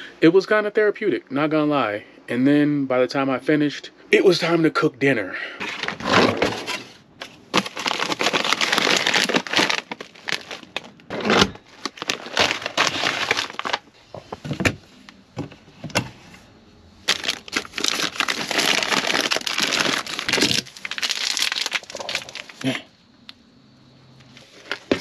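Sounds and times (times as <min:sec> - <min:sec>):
plastic packaging crinkling: 0:05.6 - 0:13.9, 0:17.0 - 0:22.8, 0:24.3 - 0:25.0.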